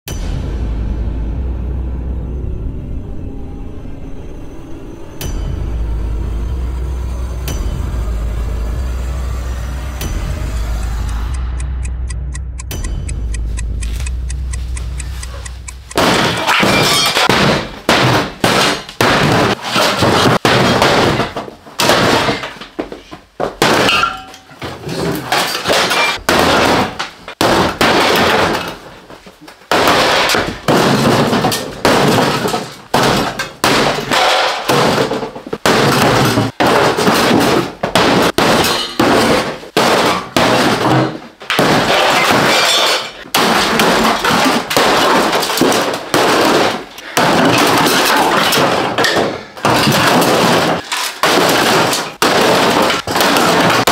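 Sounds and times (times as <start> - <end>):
sledgehammers banging sheet metal: 5.2 - 10.8, 14.5 - 53.9
metal panels crumpling: 16.0 - 53.9.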